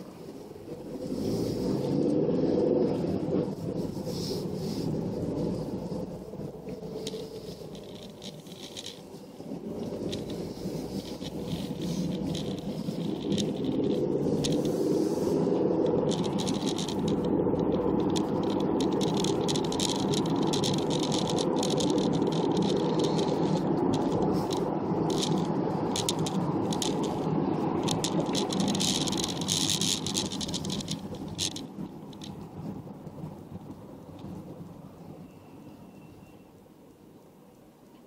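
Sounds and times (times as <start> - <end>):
road and engine noise: 0.0 - 38.0
clattering rattle: 6.9 - 9.2, 9.8 - 14.7, 16.1 - 27.2, 27.8 - 32.4.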